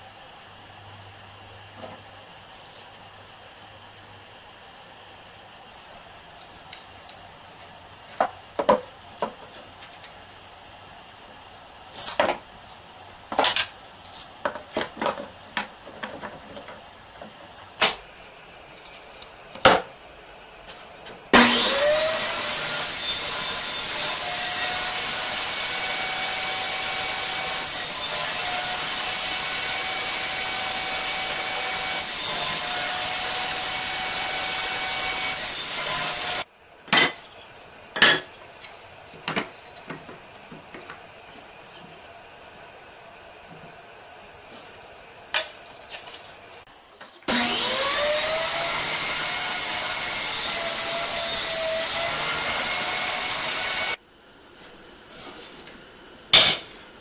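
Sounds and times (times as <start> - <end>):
boards knocking and clattering: 8.2 - 9.5
table saw running: 21.3 - 36.5, 47.3 - 54.0.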